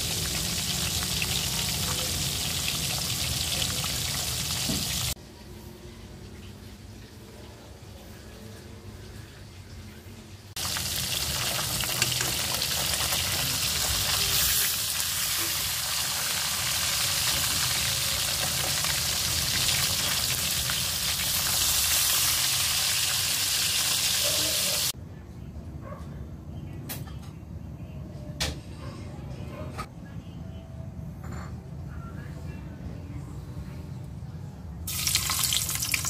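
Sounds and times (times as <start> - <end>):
fish sizzling in hot oil: 0.0 - 5.2, 10.6 - 24.9, 34.9 - 36.0.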